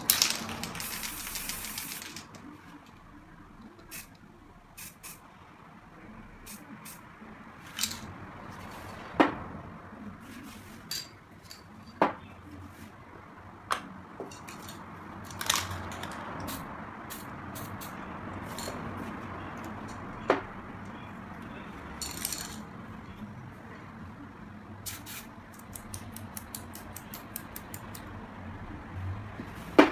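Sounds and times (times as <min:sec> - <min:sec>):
metallic clinks of spray cans: 0:00.0 - 0:02.3, 0:07.7 - 0:08.1, 0:14.3 - 0:18.8, 0:22.0 - 0:22.6
spray paint hissing: 0:00.0 - 0:02.4, 0:03.9 - 0:04.2, 0:04.8 - 0:05.2, 0:16.4 - 0:18.8, 0:24.8 - 0:27.7.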